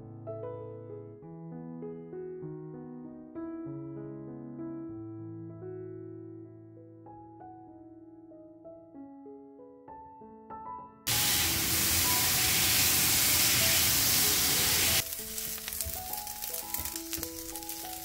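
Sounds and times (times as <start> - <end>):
soft piano music: 0.0 - 18.0
chicken sizzling in hot oil: 11.1 - 18.0.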